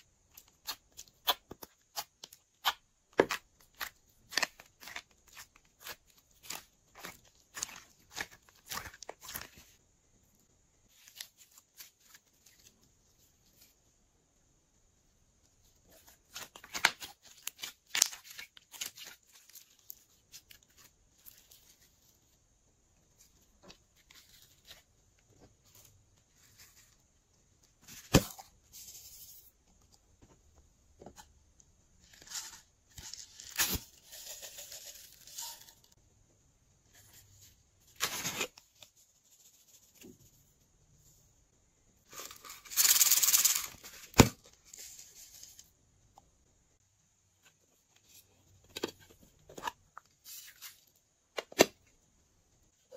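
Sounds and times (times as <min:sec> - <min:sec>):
add-ins shaken and poured: 0:34.0 - 0:35.7.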